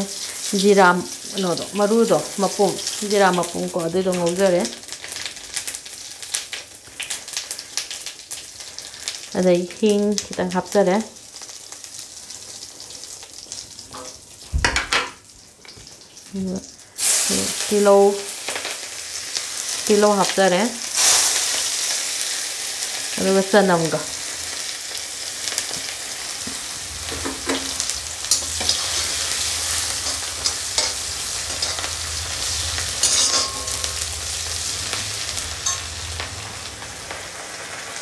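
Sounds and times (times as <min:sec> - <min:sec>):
onion sizzling in hot oil: 0:00.0 - 0:38.0
metal spoon scraping a pan: 0:26.5 - 0:34.7, 0:35.3 - 0:36.2.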